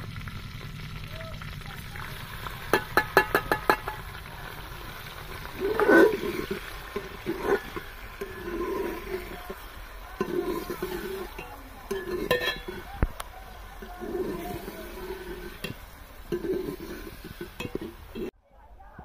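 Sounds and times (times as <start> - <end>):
steel bowl clinking on pot: 2.6 - 13.2, 13.8 - 18.3.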